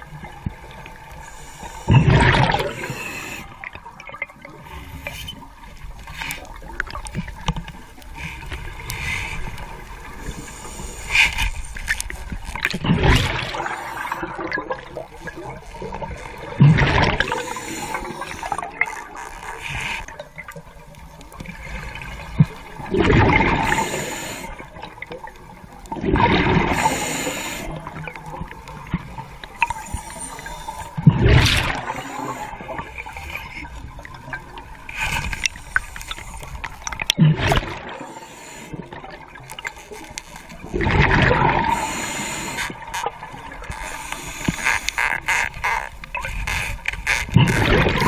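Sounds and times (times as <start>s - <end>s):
air bubbles gurgling underwater: 1.8s - 4.6s, 12.4s - 19.2s, 21.3s - 39.6s, 40.6s - 43.8s, 47.3s - 48.0s
quiet hiss: 26.6s - 37.1s.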